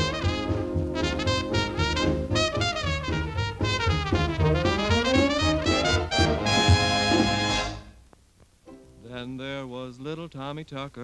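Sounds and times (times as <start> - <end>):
swing band with brass: 0.0 - 8.0.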